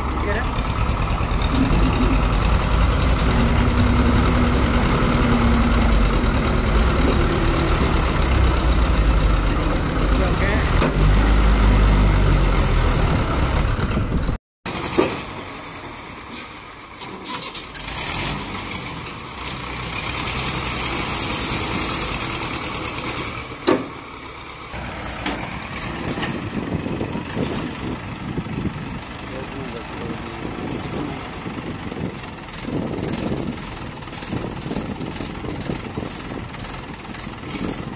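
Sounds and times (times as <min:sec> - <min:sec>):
tractor diesel engine running: 0:00.0 - 0:37.9.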